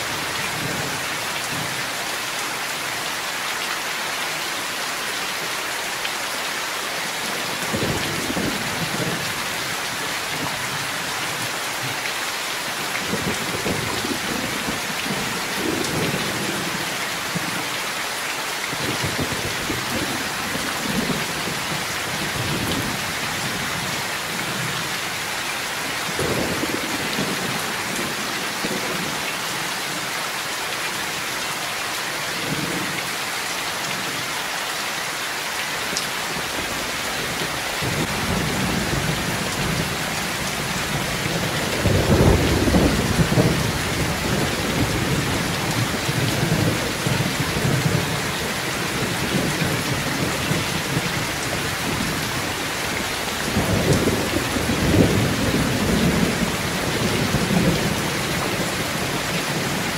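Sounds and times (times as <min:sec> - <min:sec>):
heavy rain pouring: 0:00.0 - 0:59.9
thunder rumbling: 0:37.8 - 0:48.2.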